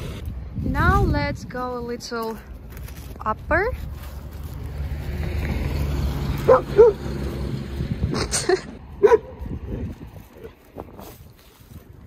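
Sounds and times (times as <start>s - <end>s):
dog barking: 6.4s - 7.1s, 9.0s - 9.4s.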